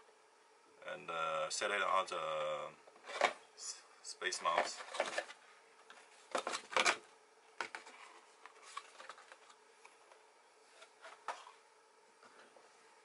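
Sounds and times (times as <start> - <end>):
cardboard rustle and scrape: 7.7 - 9.5.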